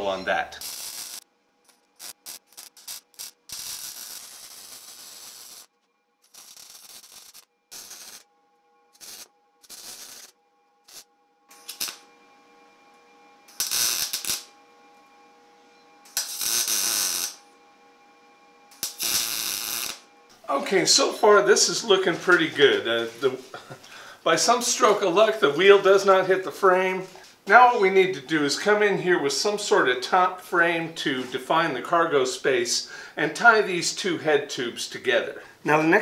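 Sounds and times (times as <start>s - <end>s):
welding arc bursts: 0.4s - 8.3s, 8.9s - 12.1s, 13.5s - 14.5s, 16.0s - 17.4s, 18.7s - 20.1s
faint steady hum: 5.5s - 31.0s.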